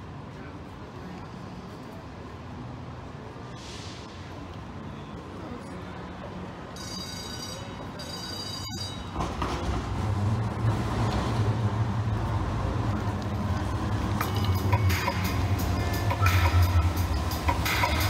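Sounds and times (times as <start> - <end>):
train wheel noise: 6.3 - 18.0
light rail train motor hum: 9.0 - 18.0.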